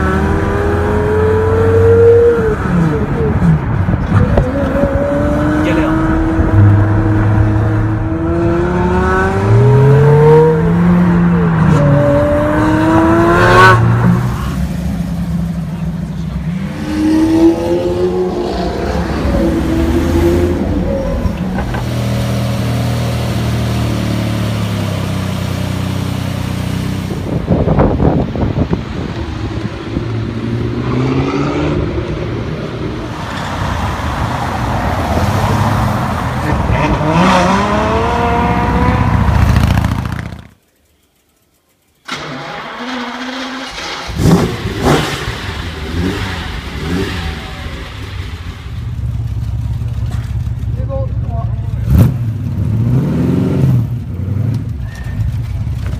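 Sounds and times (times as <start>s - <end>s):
car engines revving and accelerating: 0.0s - 40.6s, 42.1s - 50.6s, 51.4s - 55.9s.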